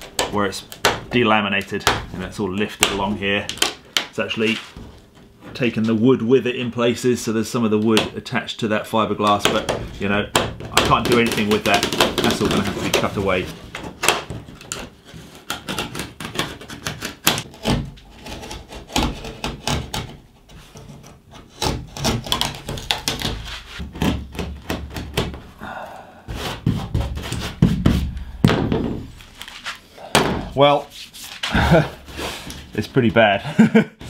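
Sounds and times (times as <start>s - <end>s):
fiberglass cracking and tearing: 21.5s - 25.4s.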